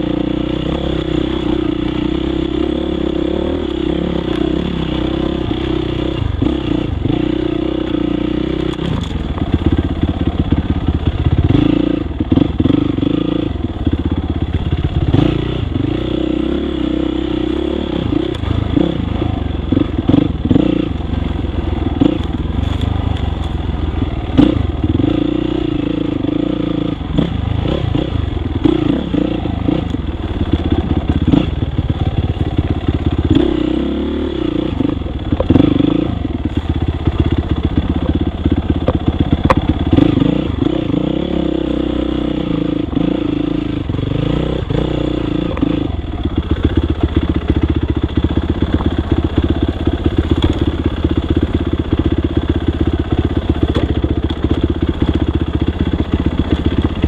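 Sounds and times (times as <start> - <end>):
dirt bike engine revving: 0.0 - 57.0
bike rattling over rough ground: 7.9 - 13.1, 18.4 - 25.3, 45.2 - 57.0.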